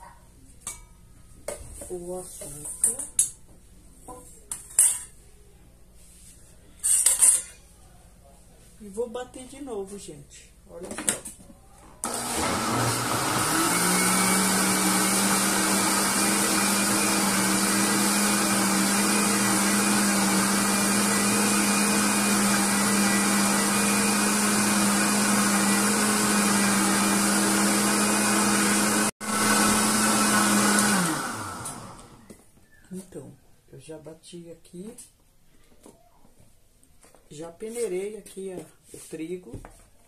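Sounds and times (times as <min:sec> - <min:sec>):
electric blender running: 0:12.0 - 0:32.3.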